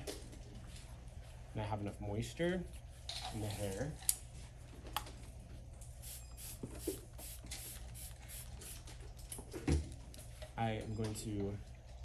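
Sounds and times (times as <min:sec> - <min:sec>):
spray bottle spritzing: 0:06.0 - 0:08.9.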